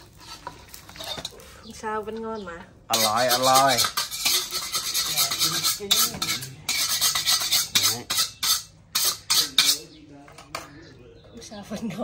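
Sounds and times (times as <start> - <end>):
metal utensil scraping cookware: 0.0 - 1.4, 2.9 - 10.8.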